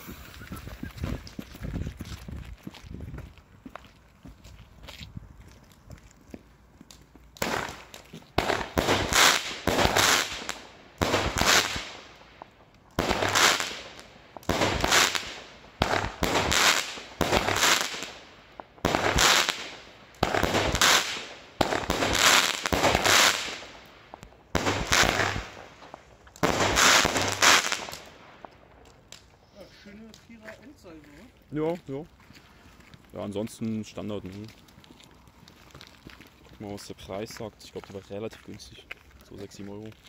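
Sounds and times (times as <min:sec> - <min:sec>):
firework bangs and crackle: 0:06.8 - 0:30.5.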